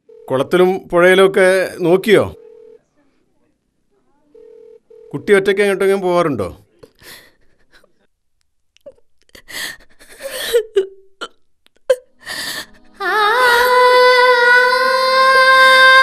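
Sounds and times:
woman sobbing: 0:08.8 - 0:16.0.

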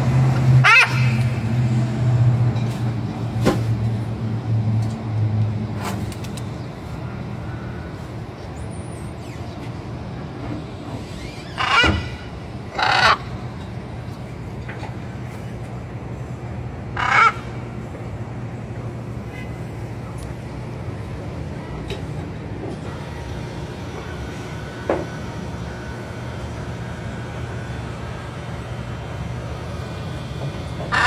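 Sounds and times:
vehicle engine humming: 0:00.0 - 0:31.0
macaw squawking: 0:00.6 - 0:01.3, 0:11.2 - 0:13.4, 0:17.0 - 0:17.5.

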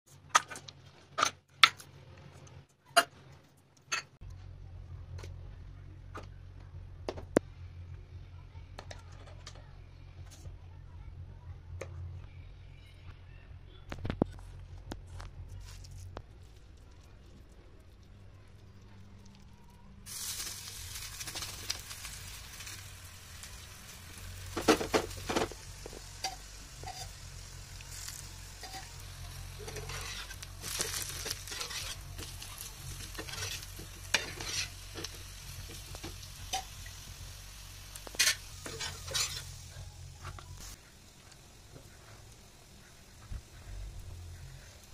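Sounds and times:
fritters sizzling in oil: 0:15.6 - 0:44.9.

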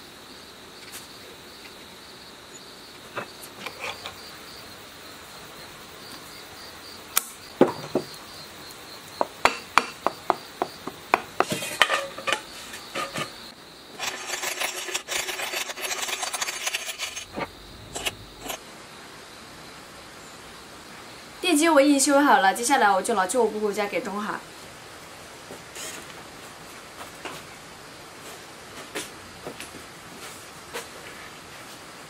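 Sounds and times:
scraping and rubbing: 0:14.0 - 0:18.6.

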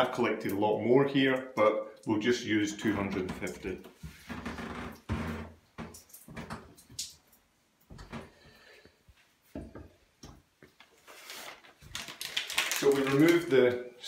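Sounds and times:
plastic packet crinkling: 0:10.7 - 0:13.9.

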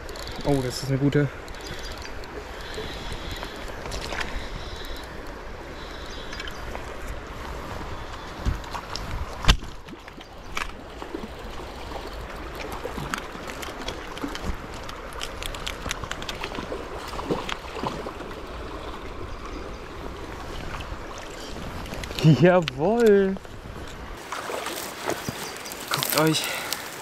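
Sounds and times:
fishing gear clicks and knocks: 0:00.0 - 0:05.4, 0:06.1 - 0:18.4, 0:20.2 - 0:27.0
fast-flowing stream rushing: 0:24.2 - 0:27.0.

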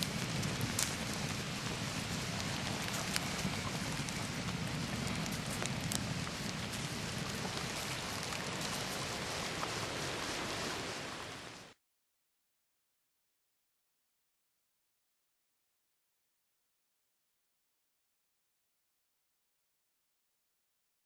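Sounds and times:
steady rain falling: 0:00.0 - 0:11.8.

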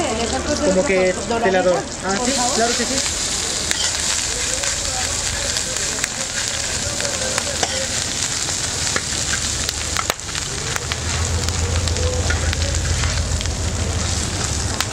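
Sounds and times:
meat and onions sizzling on griddle: 0:00.0 - 0:14.9
low hum: 0:08.2 - 0:14.9.

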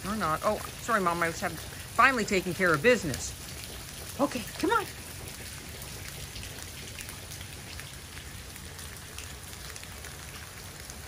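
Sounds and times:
faint raindrop ticks: 0:00.0 - 0:11.0
steady rain falling: 0:00.0 - 0:11.0.

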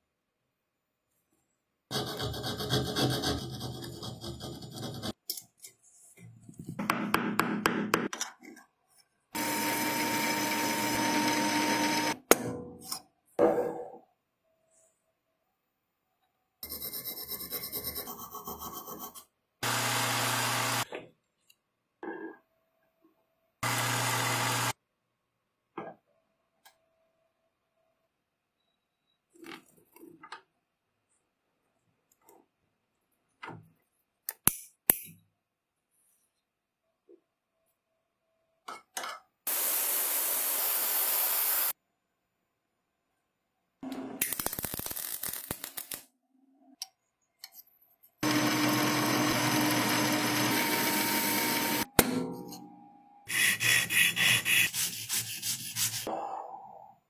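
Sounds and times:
file scraping on steel: 0:01.9 - 0:05.2, 0:53.3 - 0:56.1
machine motor humming: 0:48.2 - 0:51.8.

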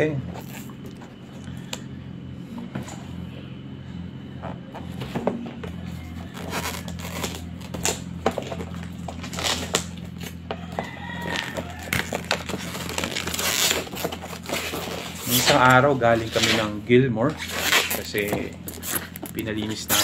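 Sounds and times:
low hum: 0:00.0 - 0:20.0
scissors cutting tape: 0:06.3 - 0:08.0.

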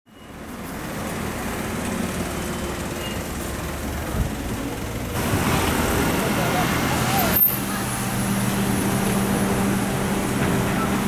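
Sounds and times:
street noise: 0:00.1 - 0:11.0
low vehicle rumble: 0:00.3 - 0:11.0.

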